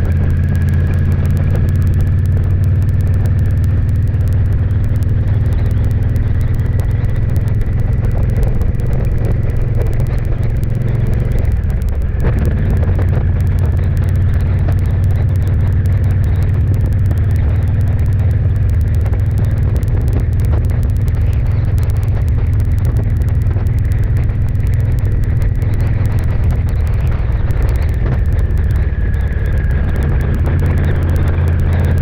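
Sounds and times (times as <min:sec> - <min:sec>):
vehicle engine and road drone: 0:00.0 - 0:32.0.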